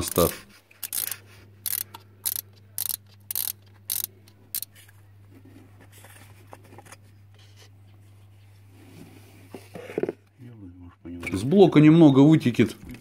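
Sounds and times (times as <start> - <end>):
socket ratchet strokes: 0.0 - 4.7.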